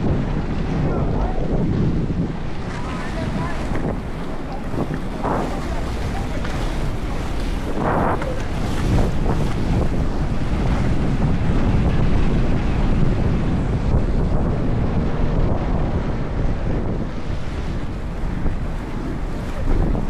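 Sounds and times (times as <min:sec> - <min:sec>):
wind buffeting microphone: 0:00.0 - 0:20.0
skate wheels rolling on asphalt: 0:02.5 - 0:12.0.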